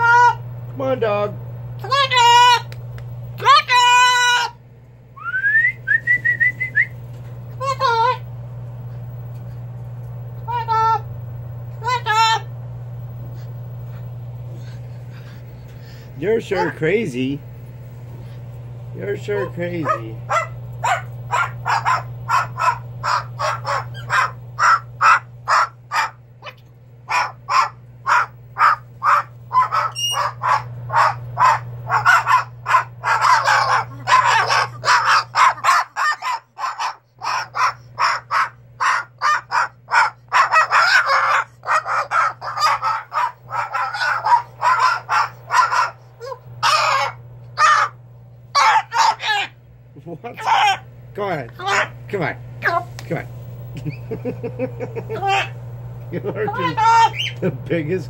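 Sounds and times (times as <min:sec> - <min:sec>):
low hum: 0:00.0 - 0:58.0
cockatoo squawking: 0:16.5 - 0:16.8, 0:19.2 - 0:49.6, 0:50.4 - 0:50.9, 0:51.6 - 0:52.8, 0:54.9 - 0:55.6, 0:56.4 - 0:57.5.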